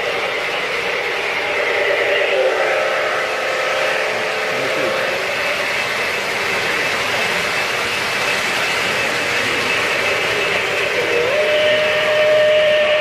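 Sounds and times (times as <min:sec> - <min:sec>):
model trains rumbling on track: 0:00.0 - 0:13.0
model steam locomotive whistle: 0:01.4 - 0:05.4, 0:09.2 - 0:13.0.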